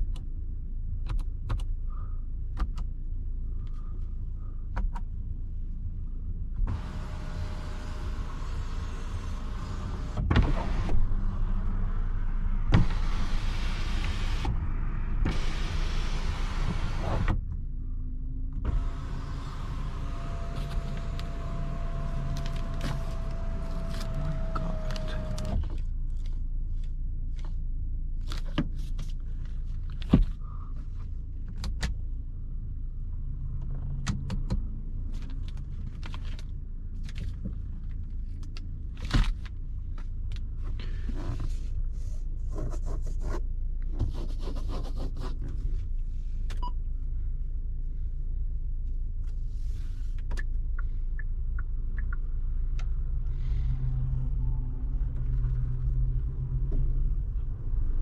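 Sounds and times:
low car cabin rumble: 0.0 - 58.0
sunroof motor whining: 18.7 - 25.6.

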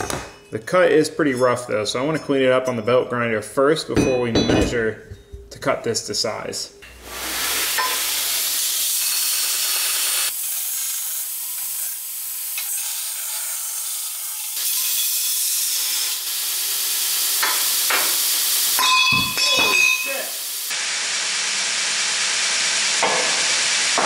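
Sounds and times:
belt grinder grinding steel: 7.1 - 20.6.

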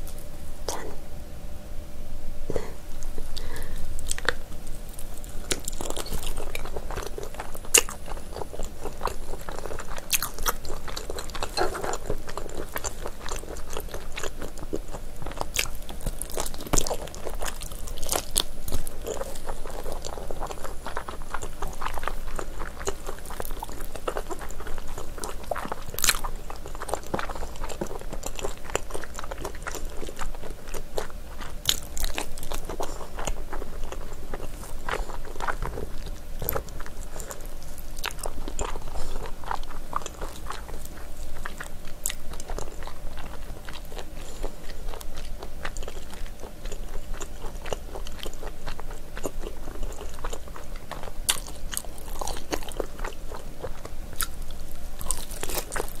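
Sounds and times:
wet chewing mouth noises: 2.5 - 56.0.

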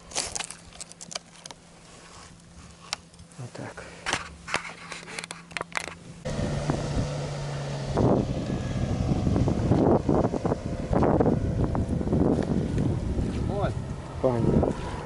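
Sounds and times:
motorboat engine running: 5.2 - 15.0
wind noise on microphone: 6.0 - 15.0.

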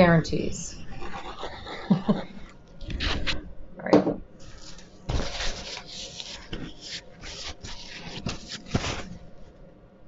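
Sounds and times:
rustling and scraping of handling: 4.4 - 9.6.

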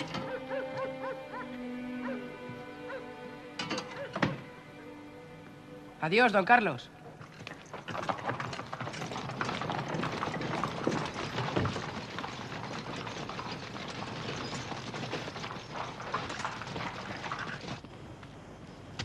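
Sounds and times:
carriage wheels and hooves clattering: 0.0 - 3.0, 3.6 - 4.4, 7.0 - 18.0.

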